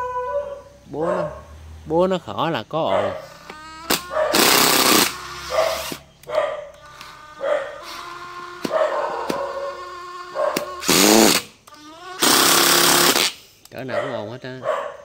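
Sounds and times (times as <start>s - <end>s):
impact driver running: 3.9s - 6.0s, 10.6s - 11.5s, 12.2s - 13.4s.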